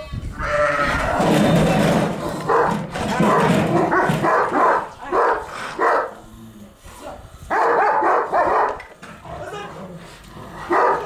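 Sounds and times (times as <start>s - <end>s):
dogs barking and snarling: 2.2s - 6.5s, 7.5s - 11.0s.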